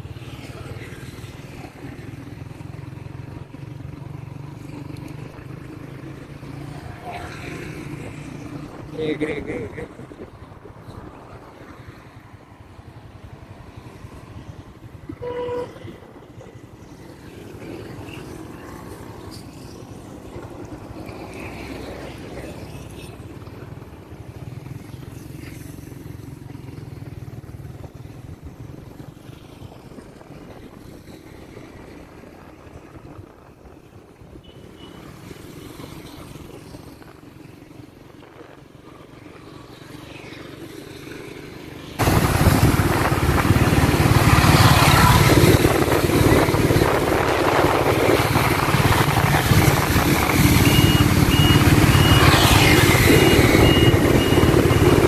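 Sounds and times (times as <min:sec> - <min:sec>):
motorbike engine and road noise: 0:00.0 - 0:55.0
short horn beep: 0:15.1 - 0:16.0.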